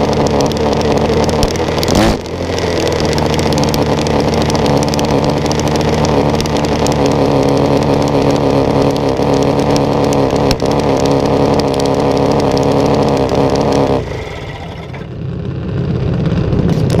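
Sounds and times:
low rumble: 0.0s - 17.0s
small single-cylinder engine running: 0.0s - 17.0s.

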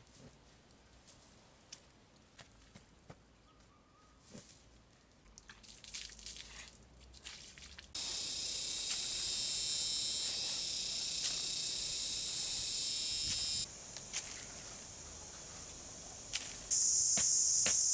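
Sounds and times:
high-pitched insect drone: 8.0s - 17.9s
soil being dug and scooped: 8.0s - 17.9s.

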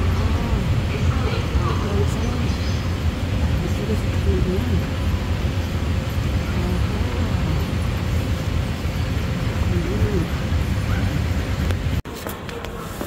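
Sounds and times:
escalator rumbling: 0.0s - 12.0s.

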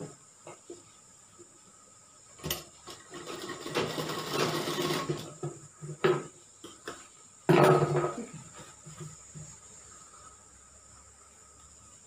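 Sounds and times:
sewing machine stitching: 3.0s - 5.3s.

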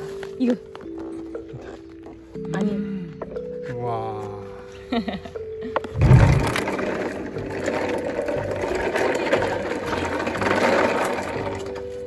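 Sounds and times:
toy wagon wheels rolling on concrete: 5.8s - 12.0s.

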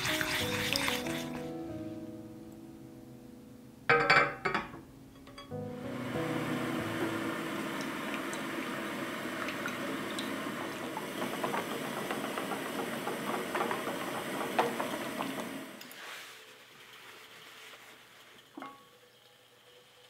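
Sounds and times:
electric mixer running: 5.9s - 15.8s.

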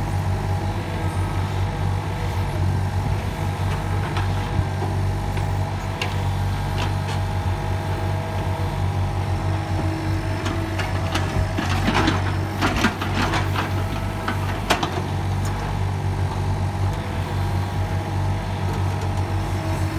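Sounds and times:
diesel engine running: 0.0s - 19.9s.

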